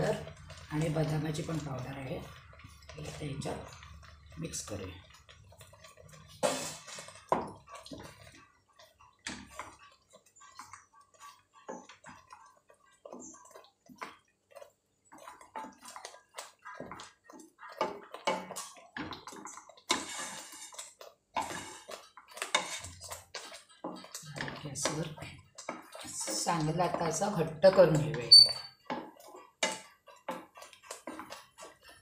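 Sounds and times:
spatula scraping a pan: 0.0 - 32.0.

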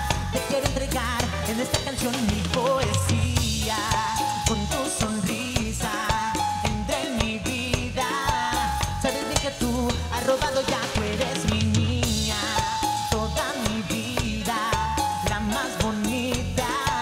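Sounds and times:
pop song with drum beat: 0.0 - 17.0.

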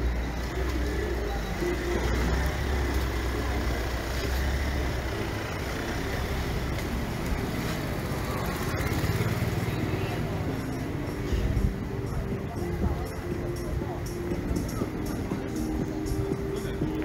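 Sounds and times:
vehicle engine rumbling past: 0.0 - 12.3
traffic noise: 0.0 - 17.0.

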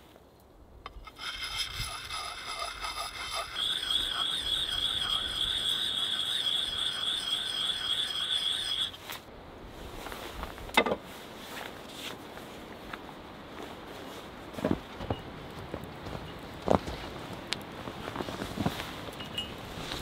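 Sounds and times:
sharpening stone rasping on axe: 0.9 - 9.2
high-pitched wavering squeal: 1.1 - 9.0.

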